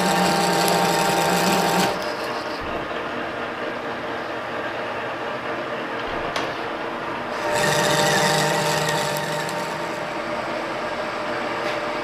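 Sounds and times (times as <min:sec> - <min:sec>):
metal lathe whine: 0:00.0 - 0:05.8, 0:07.2 - 0:11.7.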